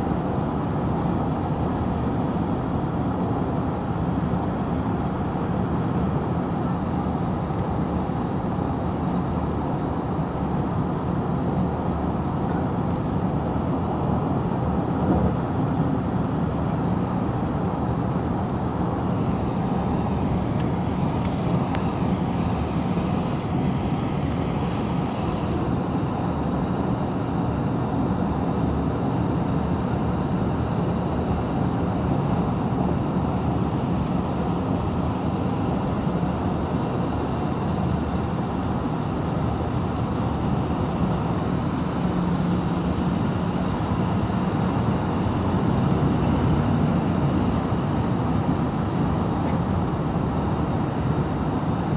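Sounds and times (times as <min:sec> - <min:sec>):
car road noise from inside cabin: 0:10.4 - 0:51.9.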